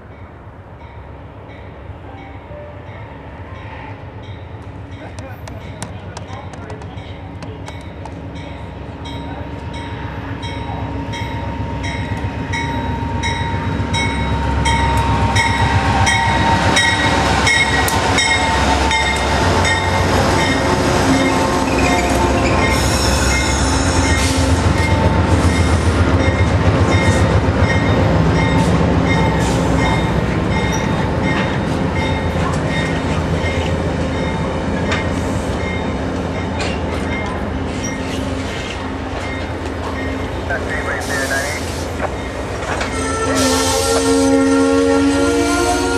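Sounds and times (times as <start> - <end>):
low train rumble: 0.0 - 45.9
train wheels clicking over joints: 5.0 - 8.3.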